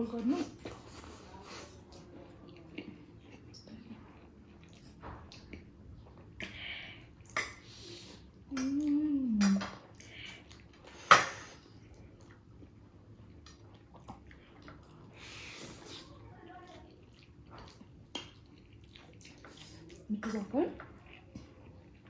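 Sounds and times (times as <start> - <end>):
person humming: 8.5 - 9.6.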